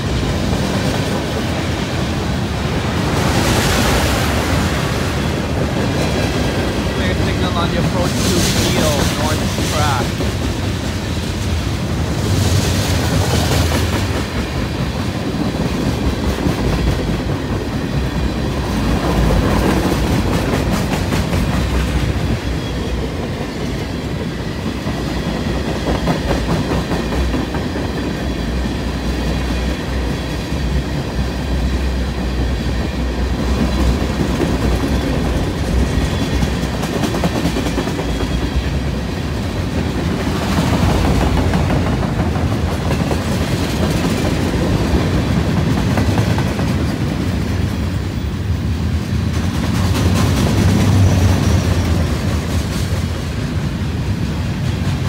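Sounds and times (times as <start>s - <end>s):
freight train rumbling past: 0.0s - 55.0s
wheels clacking over rail joints: 32.8s - 48.0s.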